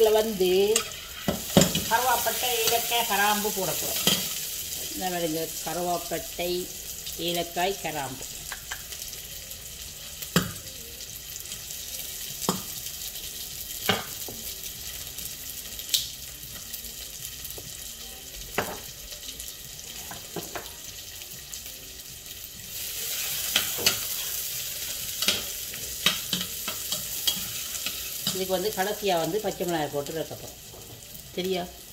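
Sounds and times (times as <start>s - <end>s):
spoon stirring onions: 0.0s - 4.9s, 22.7s - 29.0s
onions frying in oil: 0.0s - 31.9s.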